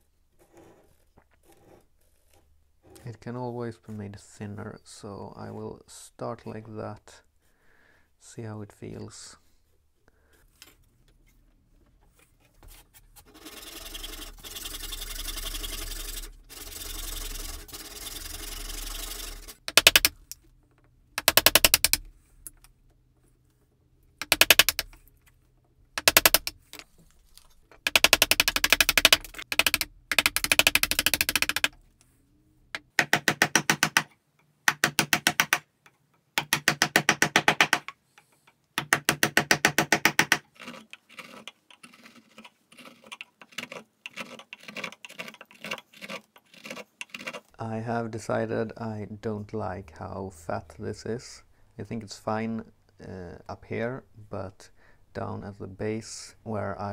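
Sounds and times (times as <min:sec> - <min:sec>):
chisel splitting wood chips: 0:38.8 - 0:47.6
steady scraping: 0:40.5 - 0:56.1.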